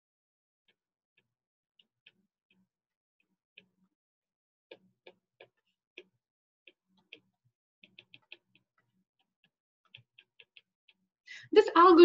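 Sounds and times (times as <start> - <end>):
stylus tapping tablet screen: 4.7 - 11.1.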